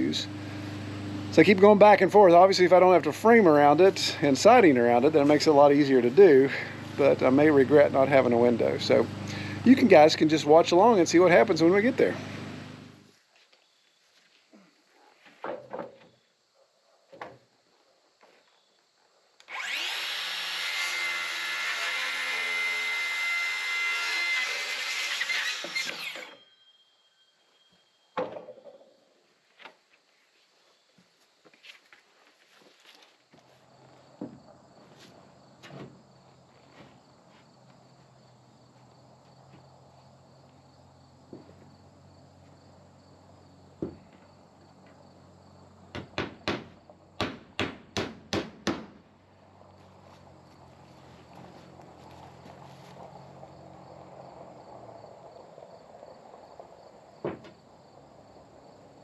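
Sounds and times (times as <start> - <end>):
circular saw cutting wood: 0.0 - 13.0, 19.4 - 26.5
faint insect chirring: 13.1 - 19.7, 26.0 - 45.9
hammer driving nails into wood: 45.9 - 49.0.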